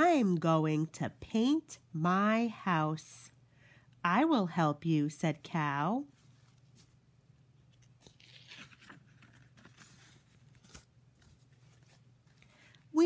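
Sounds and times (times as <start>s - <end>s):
paper rustling: 7.7s - 12.7s.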